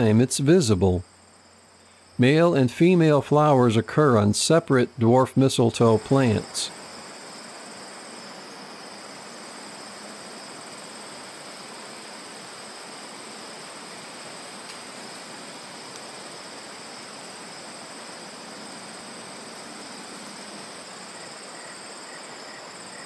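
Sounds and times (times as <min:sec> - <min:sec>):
background hiss: 0:00.0 - 0:23.0
insects trilling: 0:00.0 - 0:23.0.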